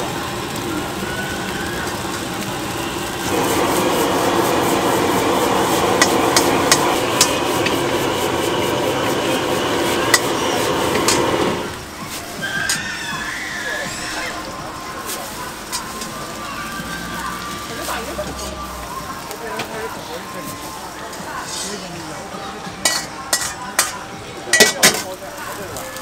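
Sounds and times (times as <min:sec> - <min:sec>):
food sizzling: 0:00.0 - 0:26.0
burner flame rushing: 0:01.6 - 0:12.4
metal ladle clanking on wok: 0:22.8 - 0:25.1.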